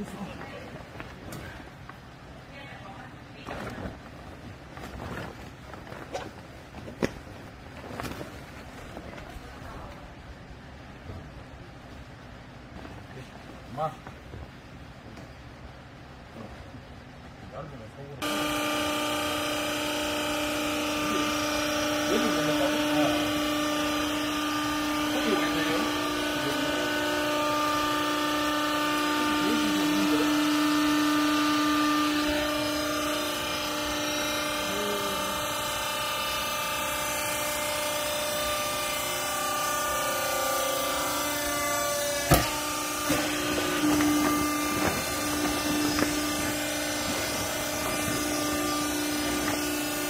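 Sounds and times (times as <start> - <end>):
hydraulic power unit humming: 0.0 - 50.0
sharp knocks: 42.2 - 47.3.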